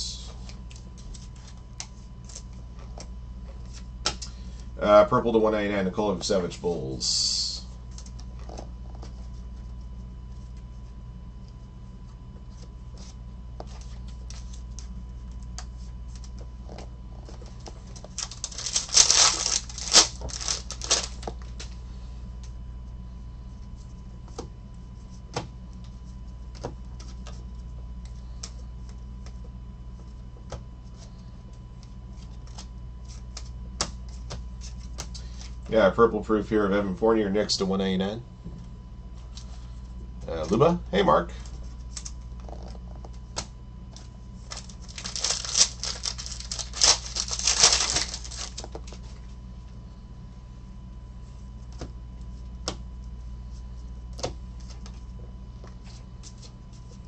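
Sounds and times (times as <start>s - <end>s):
low hum: 0.0s - 57.0s
cards rustling and snapping: 0.3s - 4.3s, 12.5s - 21.8s, 31.8s - 35.6s, 41.4s - 49.2s
cards clicking and tapping: 54.2s - 55.0s.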